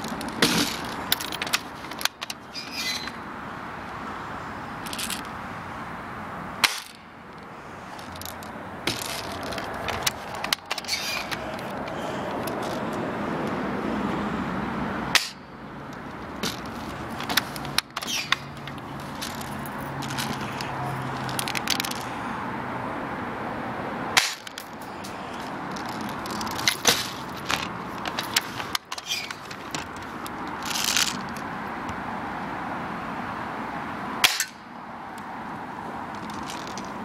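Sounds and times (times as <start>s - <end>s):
steady background noise: 0.0s - 37.0s
airsoft gun shots snapping: 24.2s - 24.5s, 34.2s - 34.6s.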